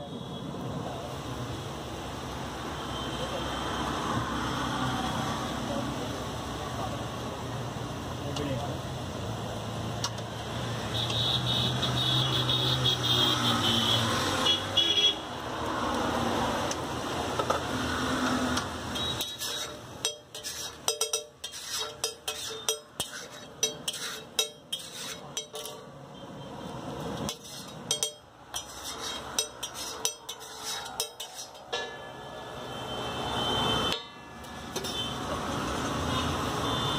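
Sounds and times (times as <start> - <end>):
road traffic: 0.0 - 36.9
vehicle horns: 10.8 - 15.3, 18.9 - 19.5, 32.0 - 35.3, 36.0 - 36.9
metal spatula scraping griddle: 18.6 - 25.9, 27.2 - 32.2, 34.0 - 35.2.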